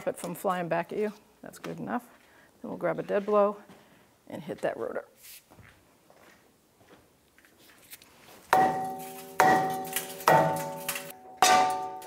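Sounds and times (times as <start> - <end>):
hammer striking brake rotor: 8.6 - 12.0.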